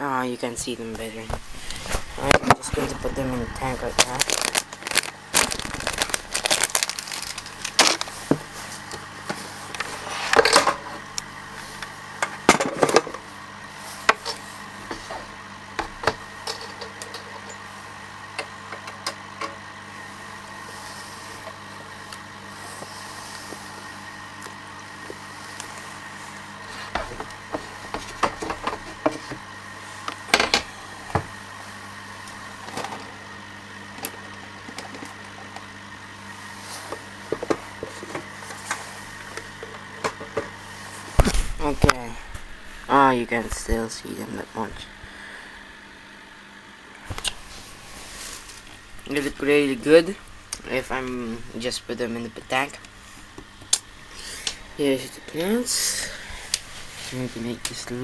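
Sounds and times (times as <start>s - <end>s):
steady hum: 0.0s - 58.0s
hands handling plastic bag: 3.6s - 8.8s.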